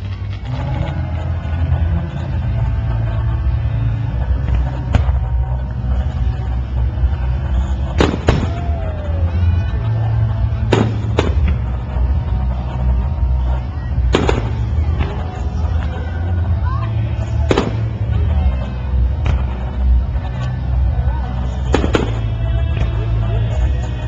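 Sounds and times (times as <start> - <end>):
low rumble: 0.0 - 24.0
fireworks bursting: 4.2 - 16.4, 17.2 - 20.8, 21.4 - 23.9.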